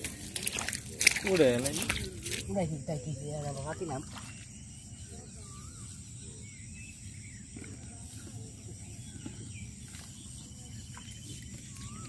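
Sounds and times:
bird chirps: 4.2s - 12.0s.

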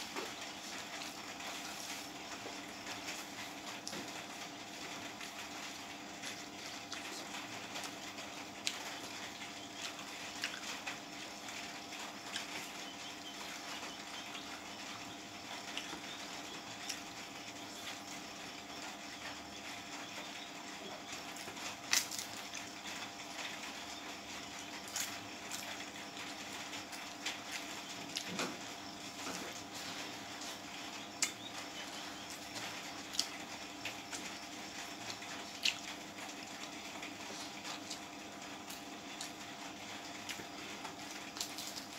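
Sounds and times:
background hum: 0.0s - 41.9s
chewing and wet mouth noises: 6.9s - 11.0s, 31.2s - 33.4s, 34.1s - 36.5s.

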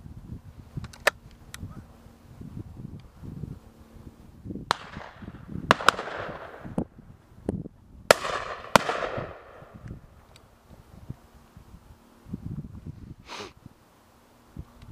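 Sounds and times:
echo of gunshots: 4.7s - 6.8s, 8.1s - 9.8s
shotgun shots: 4.7s - 6.8s, 8.1s - 9.8s.

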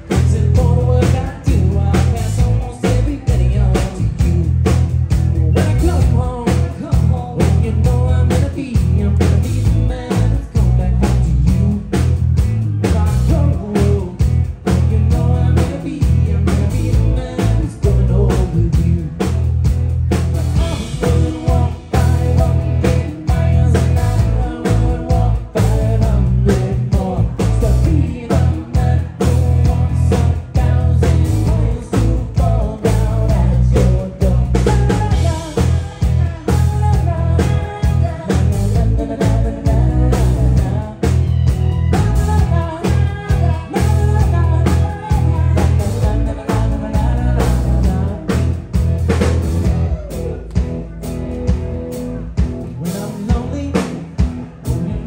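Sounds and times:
bass guitar: 0.0s - 55.0s
drum kit: 0.0s - 55.0s
keyboard: 0.0s - 55.0s
woman singing: 30.1s - 41.2s, 41.9s - 48.4s.

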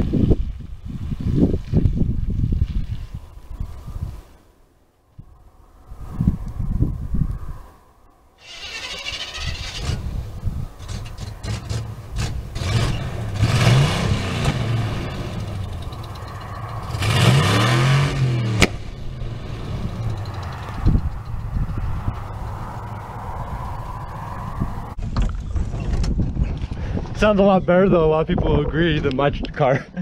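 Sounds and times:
spinning tyres hissing: 8.4s - 25.0s
engine revving hard: 10.8s - 16.1s, 16.8s - 21.0s
sharp crack: 10.8s - 20.1s.

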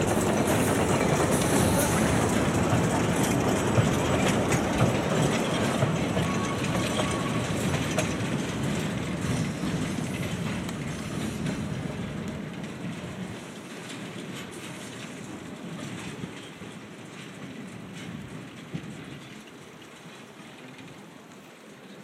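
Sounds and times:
train cars rattling: 0.0s - 22.0s
train wheels clicking over rail joints: 0.0s - 22.0s.

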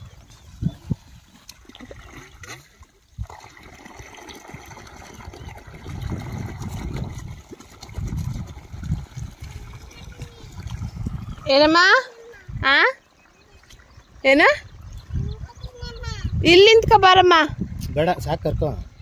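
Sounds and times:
water pouring from a hose: 0.0s - 12.7s.

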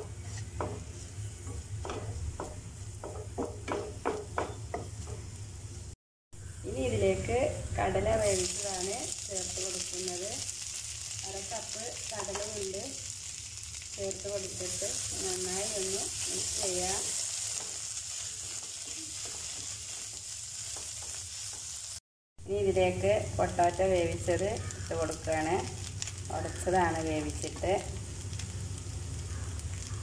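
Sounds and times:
food sizzling in a frying pan: 4.9s - 30.0s
spatula stirring in a pan: 14.6s - 22.0s.

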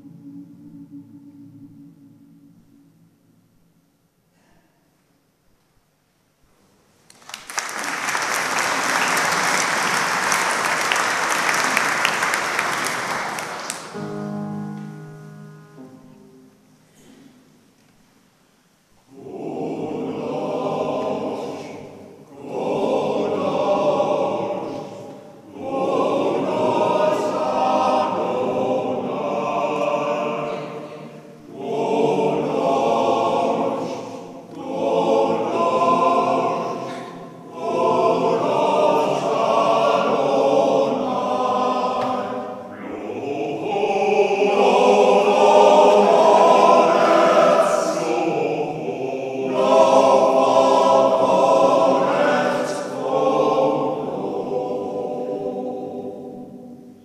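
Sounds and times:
male voice choir singing: 19.1s - 56.9s.

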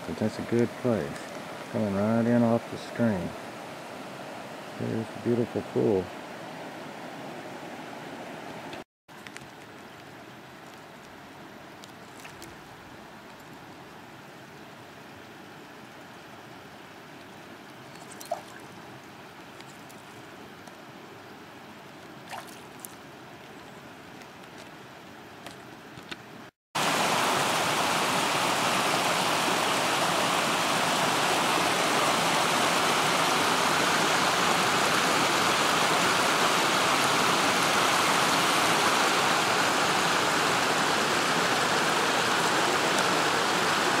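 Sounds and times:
stream water rushing: 0.0s - 8.8s, 10.1s - 25.4s, 26.8s - 44.0s
small ticks: 19.5s - 20.8s.

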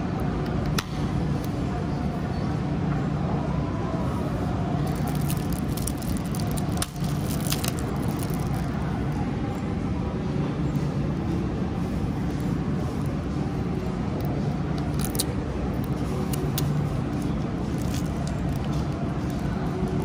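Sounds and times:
steady low rumble: 0.0s - 20.0s
plastic wrap crackling: 4.8s - 8.8s, 14.8s - 16.7s, 17.7s - 18.8s.

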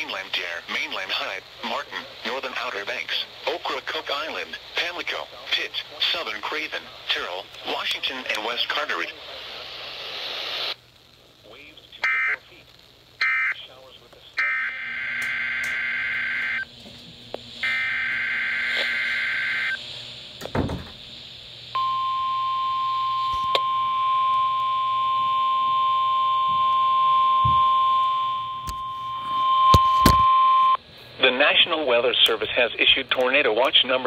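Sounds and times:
harsh digital buzzing bursts: 14.4s - 16.7s, 17.5s - 21.0s
steady alarm tone: 14.4s - 16.7s, 17.6s - 20.2s, 21.7s - 30.8s
thump: 20.4s - 21.0s.

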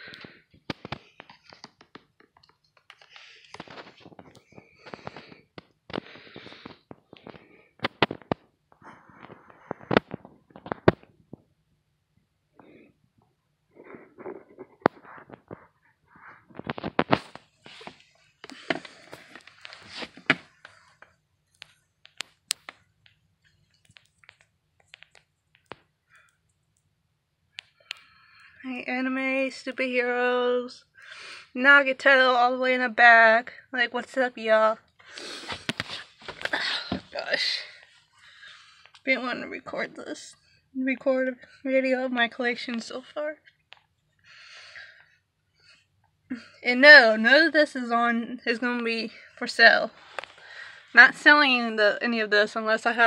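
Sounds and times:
rustling: 13.8s - 22.9s
light clicks and taps: 20.6s - 26.9s.

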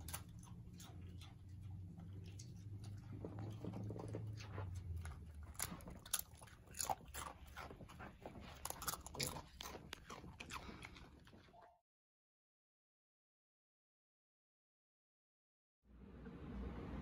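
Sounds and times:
dog crunching potato chips: 0.0s - 11.6s.

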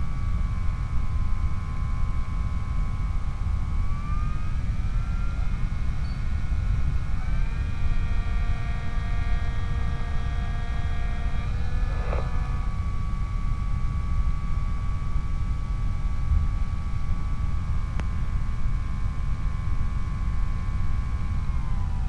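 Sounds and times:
wind rumble on microphone: 0.0s - 22.0s
electric motor whining: 1.4s - 14.6s, 21.1s - 22.0s.

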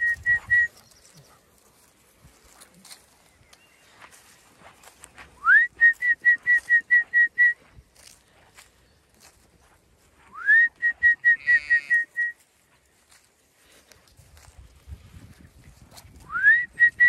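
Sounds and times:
person whistling a call: 0.0s - 0.8s, 5.4s - 7.6s, 10.3s - 12.4s, 16.2s - 17.0s.

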